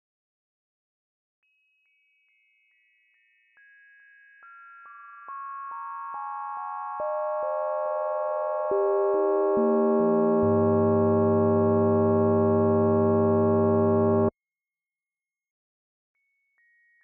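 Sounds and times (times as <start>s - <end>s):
synthesised bell tones: 6.9s - 14.3s.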